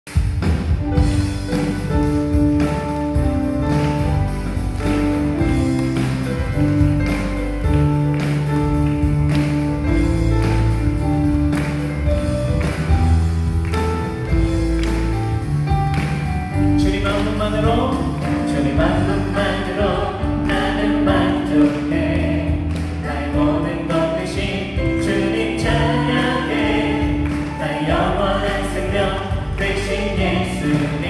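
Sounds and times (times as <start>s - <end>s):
bass: 0.0s - 31.0s
steady drum beat: 0.1s - 31.0s
keyboard chords: 0.2s - 31.0s.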